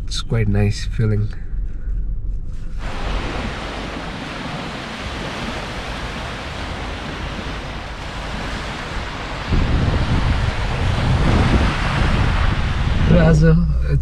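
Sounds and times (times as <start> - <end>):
wind buffeting microphone: 1.5 - 14.0
waves lapping on sandy shore: 2.8 - 13.4.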